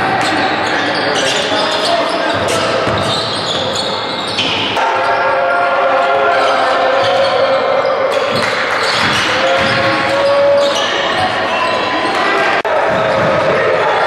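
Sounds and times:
voices calling out: 0:00.0 - 0:14.0
basketball bouncing on court: 0:02.3 - 0:03.6.

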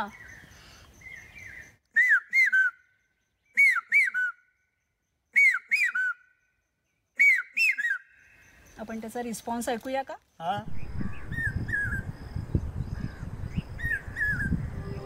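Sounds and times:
man whistling bird call: 0:01.9 - 0:04.6, 0:05.3 - 0:06.4, 0:07.2 - 0:08.2, 0:13.8 - 0:15.0.

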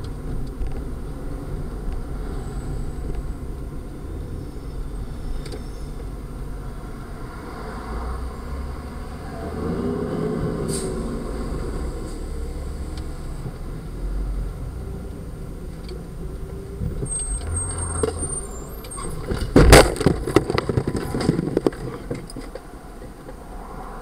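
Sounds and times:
vehicle engine and road noise: 0:00.0 - 0:24.0
windshield crash and shattering: 0:19.2 - 0:22.0.

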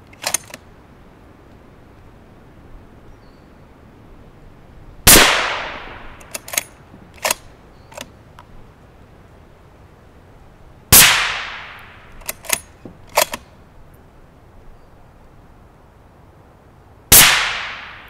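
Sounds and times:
suppressed rifle shots: 0:05.1 - 0:08.1, 0:10.9 - 0:13.5, 0:17.1 - 0:18.0.

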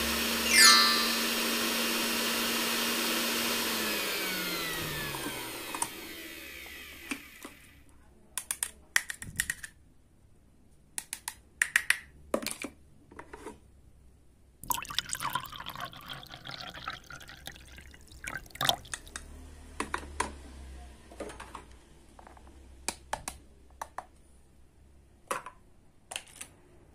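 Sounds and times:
toy mixer whirring: 0:00.0 - 0:07.8
plastic toy parts clicking: 0:08.4 - 0:09.8, 0:11.0 - 0:12.7, 0:25.3 - 0:26.5
liquid pouring into cup: 0:14.6 - 0:19.2.

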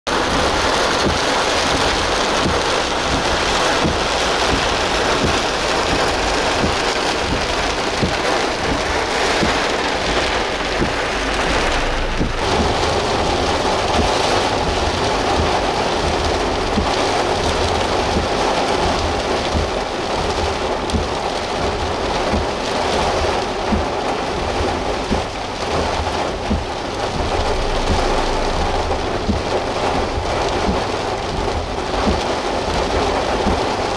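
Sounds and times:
heavy rain hissing: 0:00.1 - 0:33.9
low thunder rumble: 0:00.1 - 0:33.9
strong wind: 0:00.2 - 0:19.5.

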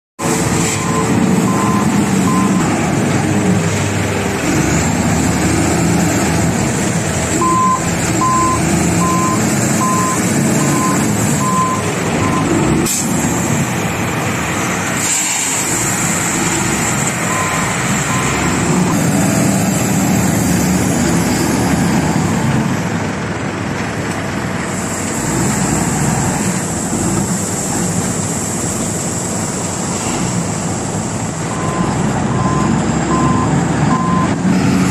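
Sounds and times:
loader diesel engine revving: 0:00.2 - 0:23.6, 0:24.3 - 0:34.9
reversing alarm beeps: 0:00.7 - 0:02.7, 0:07.4 - 0:12.6, 0:17.3 - 0:19.0, 0:31.5 - 0:34.4.

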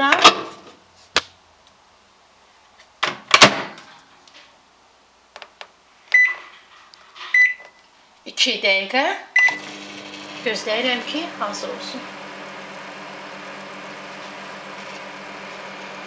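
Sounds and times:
short electronic beeps: 0:06.1 - 0:06.4, 0:07.4 - 0:07.8.

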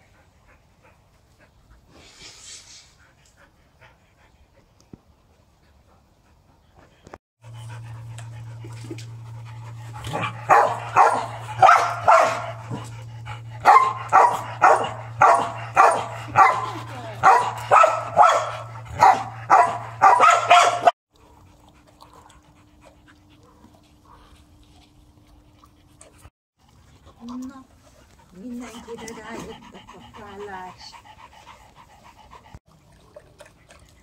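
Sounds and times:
steady low hum: 0:05.6 - 0:32.6
dog barking: 0:10.5 - 0:12.6, 0:13.6 - 0:20.9.

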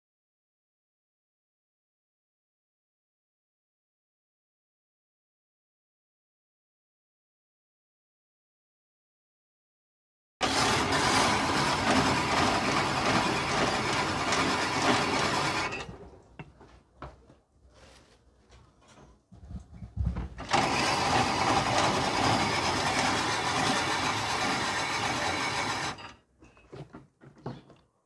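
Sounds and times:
ice-shaving machine grinding ice: 0:10.4 - 0:16.0, 0:20.4 - 0:26.2.

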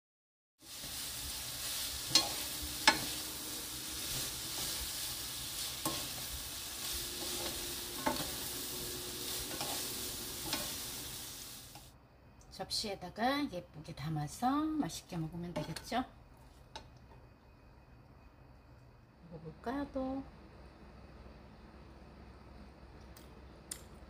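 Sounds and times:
food sizzling in a frying pan: 0:00.6 - 0:12.0.

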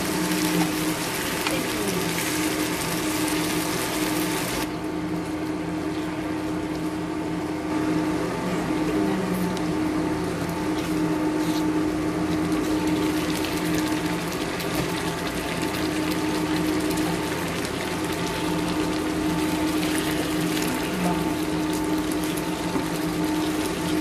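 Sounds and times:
sauce bubbling in a pan: 0:00.0 - 0:04.7, 0:11.9 - 0:24.0
electric hum: 0:00.0 - 0:24.0.

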